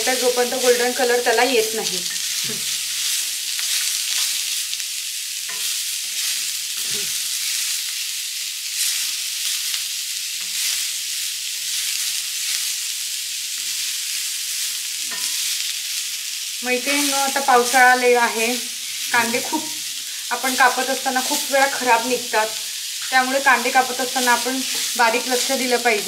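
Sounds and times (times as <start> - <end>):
onions sizzling on griddle: 0.0 - 26.0
wooden spatula scraping: 23.0 - 26.0.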